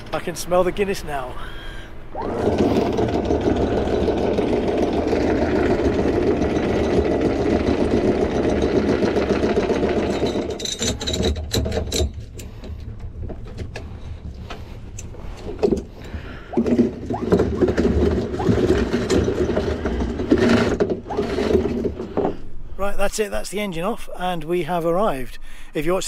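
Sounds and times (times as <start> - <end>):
boat engine running: 2.0 - 11.1, 13.8 - 22.2.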